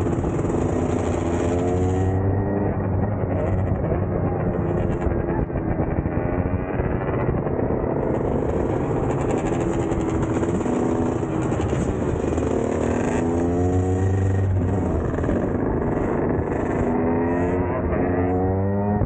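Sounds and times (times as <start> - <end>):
dirt bike engines revving: 0.0 - 19.0
rush of riding noise: 0.0 - 19.0.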